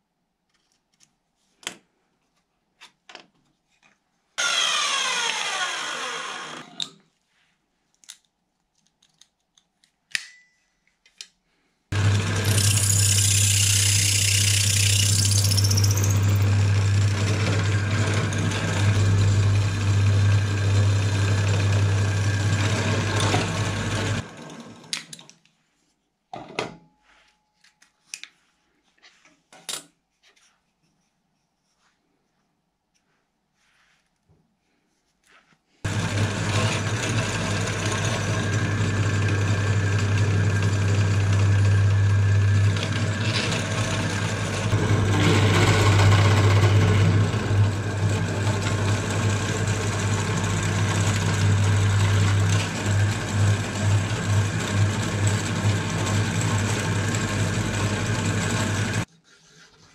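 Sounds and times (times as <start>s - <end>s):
drill press motor hum: 4.4s - 7.0s, 11.9s - 24.3s, 35.9s - 59.1s
drill bit hissing into wood: 12.4s - 16.4s.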